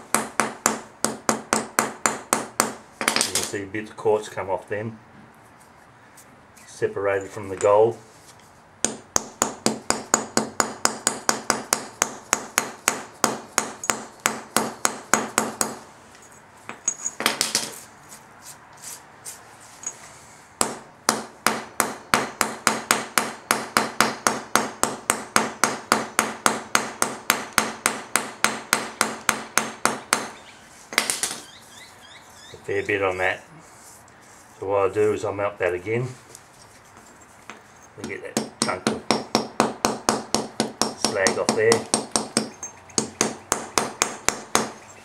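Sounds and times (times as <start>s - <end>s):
small hammer tapping metal: 38.0s - 44.8s.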